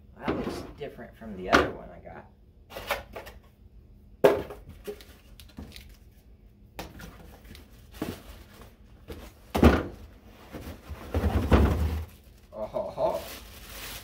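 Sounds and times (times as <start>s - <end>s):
cardboard flaps rustling and scraping: 7.2s - 12.3s
thump on cardboard box: 9.5s - 10.0s, 11.1s - 12.0s.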